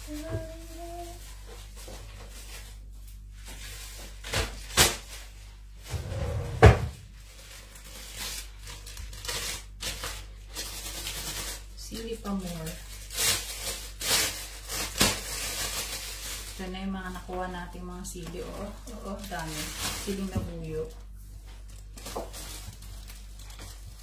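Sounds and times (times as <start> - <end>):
plastic bag rustling: 0.0 - 24.0
cupboard door opening and shutting: 5.9 - 7.0
cupboard door bang: 6.3 - 7.0.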